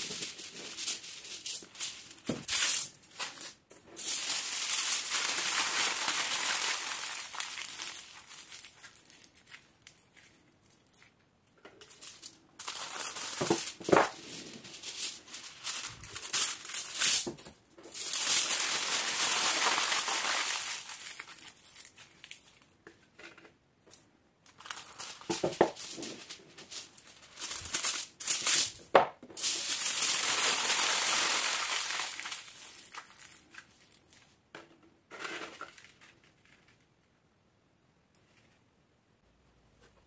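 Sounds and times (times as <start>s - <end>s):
foil rustling: 0.0s - 11.1s, 11.9s - 17.3s, 17.9s - 22.6s, 24.6s - 28.8s, 29.4s - 34.2s
aluminum foil crinkling: 0.0s - 17.3s, 17.9s - 23.2s, 24.5s - 28.8s, 29.4s - 34.4s, 35.1s - 36.8s.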